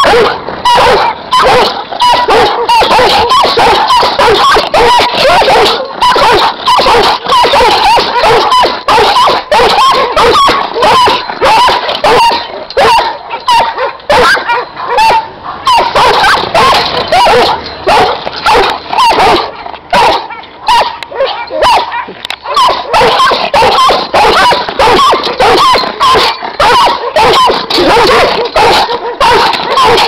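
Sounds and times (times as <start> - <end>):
dogs barking: 0.0 - 30.0.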